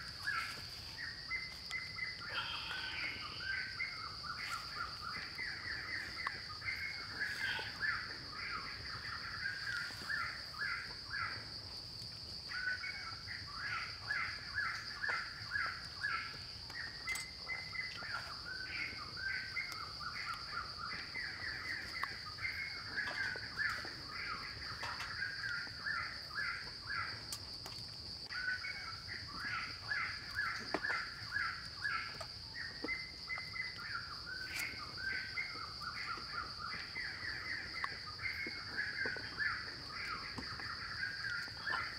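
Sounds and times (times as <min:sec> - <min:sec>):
high-pitched insect drone: 0:00.0 - 0:11.3.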